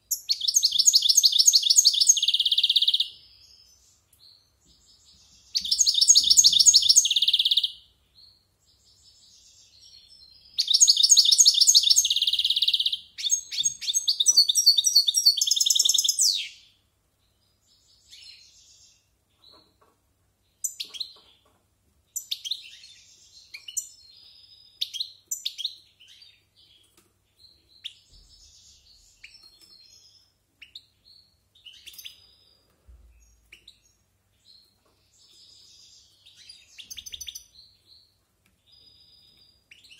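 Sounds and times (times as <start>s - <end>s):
goldfinch singing: 5.4s - 7.8s, 9.0s - 16.7s, 27.7s - 32.4s, 33.3s - 38.1s.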